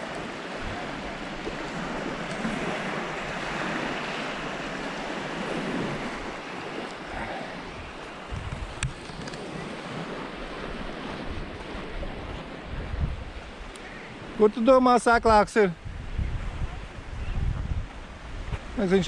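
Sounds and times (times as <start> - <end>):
wind buffeting microphone: 0.0 - 14.4, 15.1 - 19.0
small waves on pebbly shore: 0.0 - 14.7.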